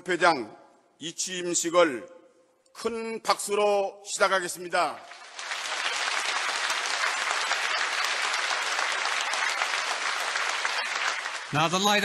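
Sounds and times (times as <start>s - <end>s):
audience applause: 5.0s - 12.0s.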